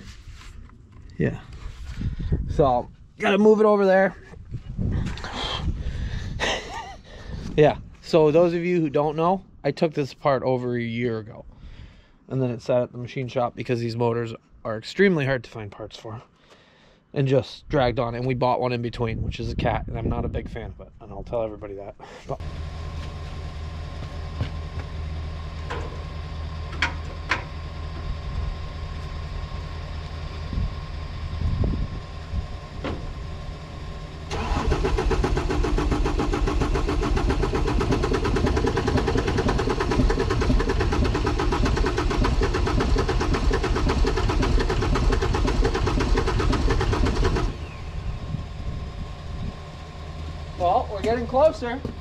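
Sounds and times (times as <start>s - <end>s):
steady low hum: 0.0s - 9.8s, 21.9s - 52.0s
diesel engine cranking on starter: 22.3s - 52.0s.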